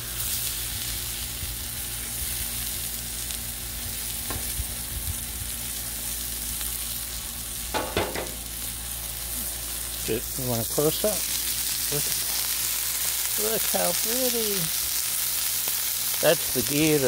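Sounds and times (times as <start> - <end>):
steaks sizzling on griddle: 0.0 - 17.0
metal spatula clanking: 7.8 - 8.5.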